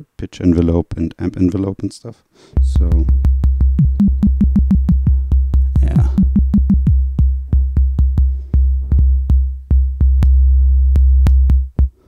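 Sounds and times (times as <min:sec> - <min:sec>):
electronic kick drum: 0:02.6 - 0:12.0.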